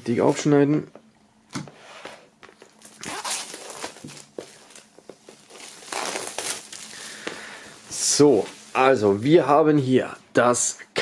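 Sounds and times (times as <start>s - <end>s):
plastic shrink wrap crinkling: 2.5s - 9.6s.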